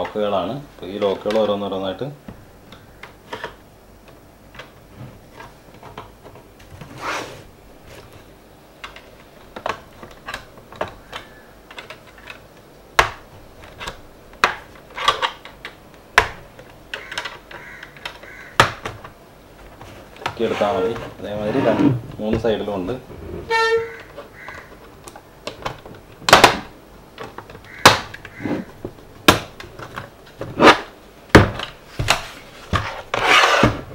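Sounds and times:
loud plastic snaps: 0:08.8 - 0:19.2, 0:24.4 - 0:32.3
plastic clips clicking loose: 0:08.8 - 0:19.2.

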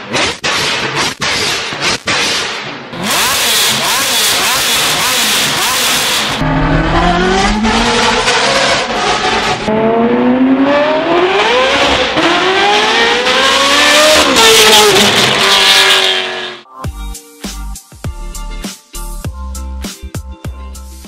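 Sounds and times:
car engine revving and accelerating: 0:00.0 - 0:16.6.

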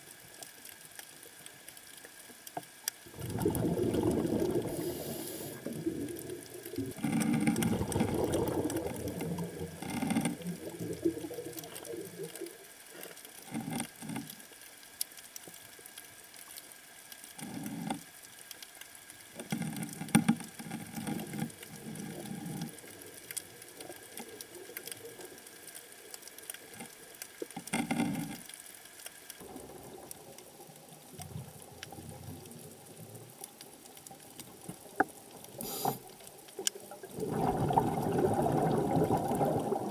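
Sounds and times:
diver exhaling bubbles underwater: 0:03.1 - 0:12.6, 0:37.0 - 0:39.9.

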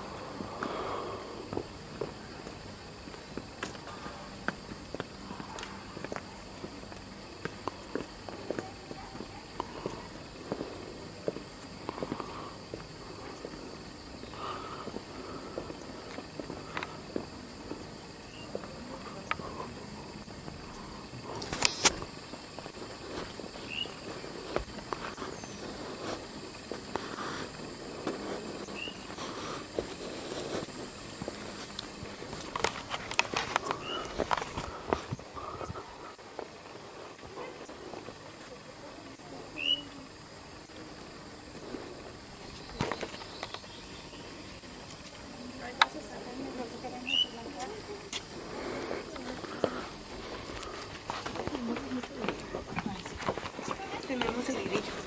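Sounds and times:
steady high hiss: 0:00.0 - 0:55.0
footsteps on gravel: 0:20.4 - 0:38.2, 0:47.5 - 0:55.0.

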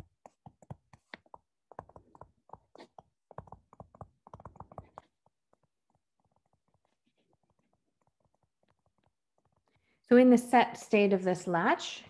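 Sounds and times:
stylus tapping on touchscreen: 0:00.0 - 0:09.8.

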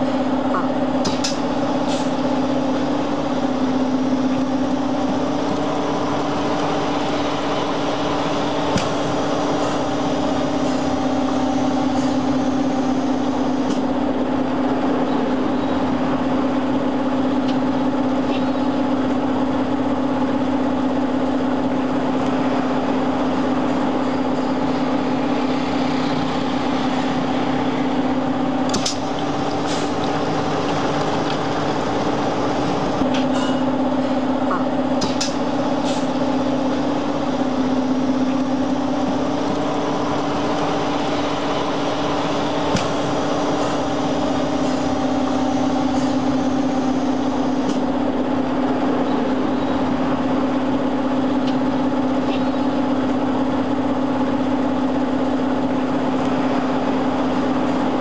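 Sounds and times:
machine hum with low drone: 0:00.0 - 0:58.0.

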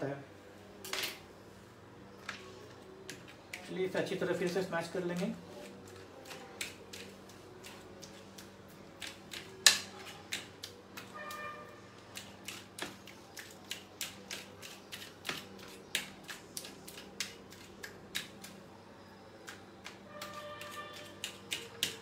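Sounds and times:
utensil tapping against a plate: 0:19.5 - 0:22.0.

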